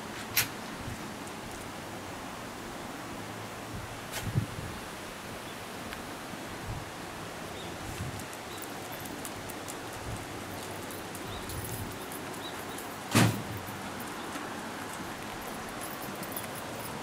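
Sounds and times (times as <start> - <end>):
outdoor background hiss: 0.0 - 17.0
loud short thump: 13.1 - 13.6.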